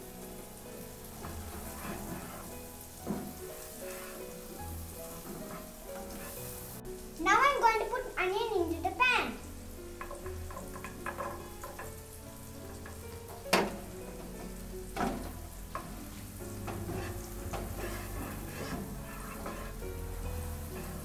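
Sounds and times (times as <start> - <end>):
vegetables sizzling in butter: 0.0 - 21.0
plastic spatula scraping a pan: 1.0 - 6.8, 10.0 - 12.0, 12.7 - 21.0.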